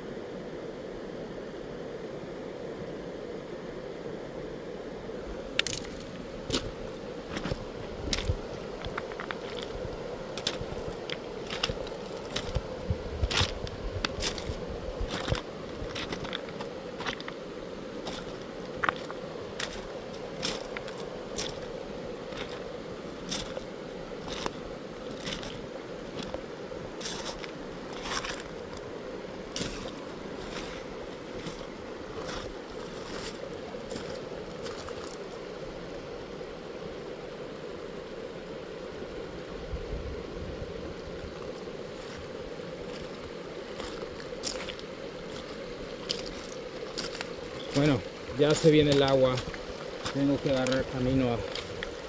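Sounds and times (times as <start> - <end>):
shallow river water flowing: 0.0 - 52.0
footsteps on wet gravel: 5.5 - 9.8, 10.4 - 17.4, 18.0 - 21.7, 23.3 - 23.7, 24.3 - 24.6, 25.2 - 25.6, 27.0 - 28.8, 29.5 - 35.2, 42.9 - 52.0.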